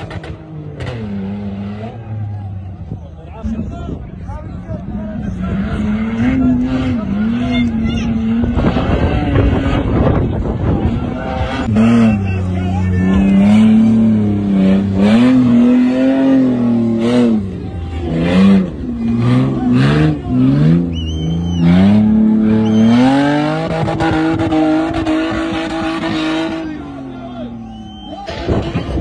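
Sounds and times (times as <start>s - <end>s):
engine revving hard: 5.3s - 27.1s
high squeal: 20.6s - 23.5s, 27.4s - 28.8s.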